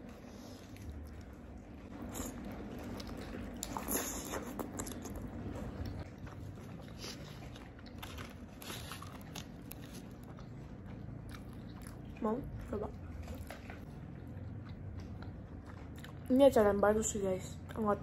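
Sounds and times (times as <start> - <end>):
crunching fried chicken: 1.9 - 12.2.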